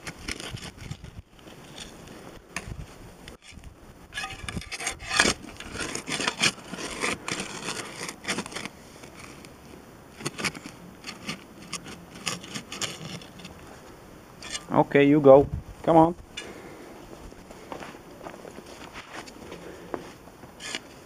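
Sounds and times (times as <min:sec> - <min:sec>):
shovel scraping into soil: 0:00.0 - 0:09.5, 0:10.2 - 0:13.6, 0:14.4 - 0:14.8, 0:20.6 - 0:21.0.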